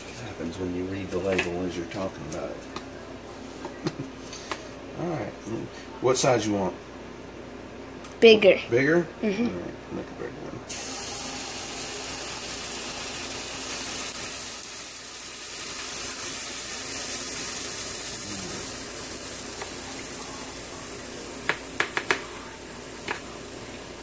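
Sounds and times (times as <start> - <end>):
batter sizzling in oil: 10.7 - 24.0.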